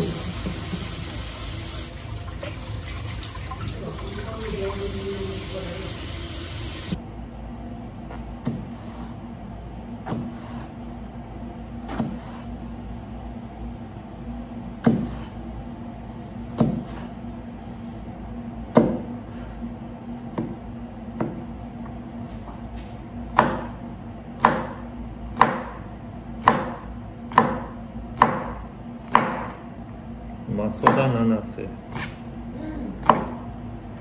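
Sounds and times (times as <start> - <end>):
knife chopping on wooden board: 8.1 - 9.2, 10.0 - 10.8, 11.8 - 12.5, 14.8 - 15.4, 16.5 - 17.2, 18.7 - 19.2, 20.3 - 22.0, 23.3 - 23.8, 24.4 - 29.6, 30.8 - 31.2, 33.0 - 33.4.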